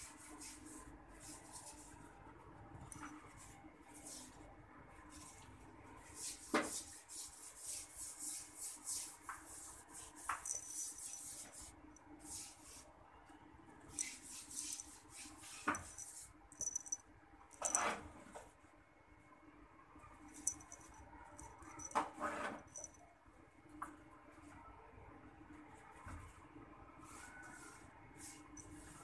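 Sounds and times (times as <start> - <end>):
cat scratching on cushion: 6.2 - 12.8, 13.9 - 16.9.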